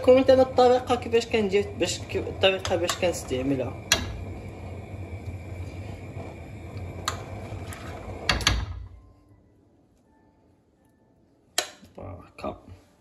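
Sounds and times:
steady low hum: 0.0s - 9.8s.

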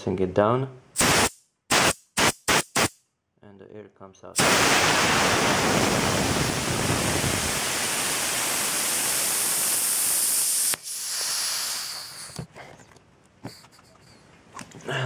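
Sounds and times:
air hissing out of valve: 1.0s - 2.9s, 4.4s - 12.5s.

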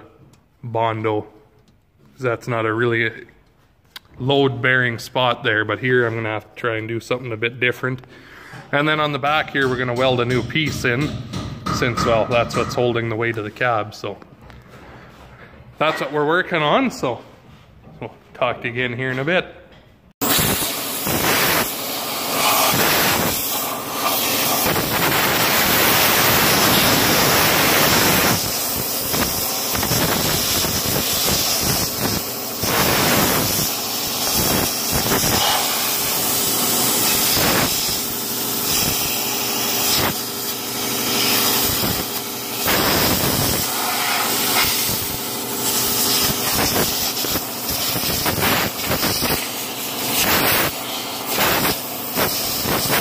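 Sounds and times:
compressed air blow gun hissing: 20.2s - 53.0s.

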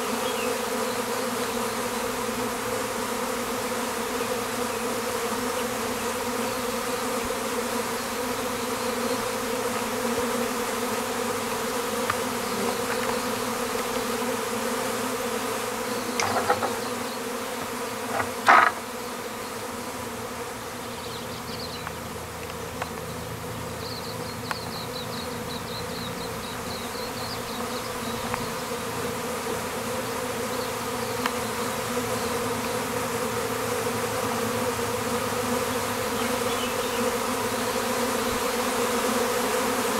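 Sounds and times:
bees buzzing: 0.0s - 39.9s
short knocks: 16.2s - 16.9s.

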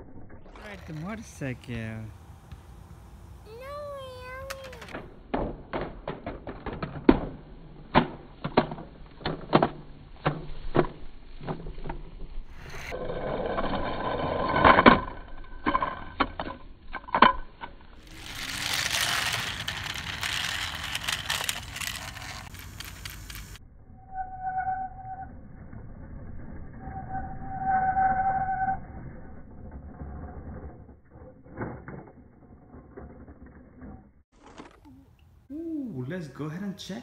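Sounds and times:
toy vehicles rolling on track: 0.6s - 2.1s, 3.5s - 5.0s, 8.5s - 23.6s, 29.5s - 35.0s
toy vehicles knocking and rattling: 3.5s - 12.0s, 13.6s - 23.6s, 31.4s - 35.1s.

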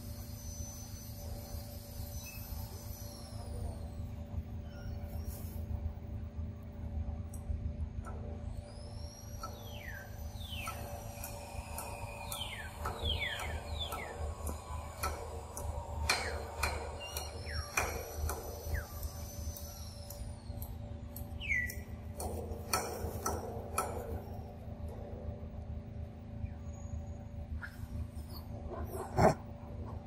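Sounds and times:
birds whistling: 0.0s - 5.8s, 8.4s - 22.1s, 26.3s - 28.6s
steady low hum: 0.0s - 30.0s.

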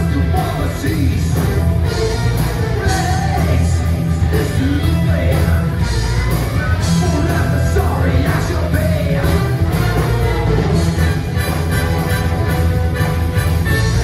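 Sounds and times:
person singing: 0.0s - 10.2s
live rock band playing: 0.0s - 14.0s.

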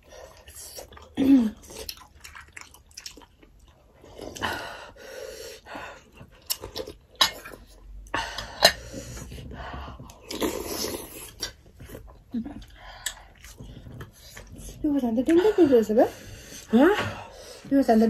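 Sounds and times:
food chewing: 0.0s - 4.5s, 6.0s - 8.0s, 8.6s - 15.4s.

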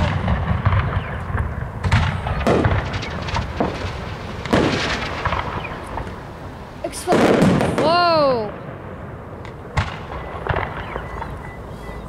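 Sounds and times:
firework pops and crackles: 0.0s - 8.8s, 9.4s - 11.4s
firework shells bursting: 0.0s - 11.4s.

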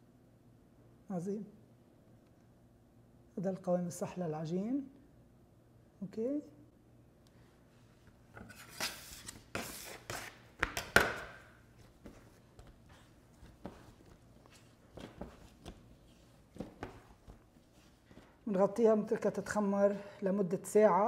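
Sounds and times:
dough slapping on worktop: 8.7s - 17.6s.

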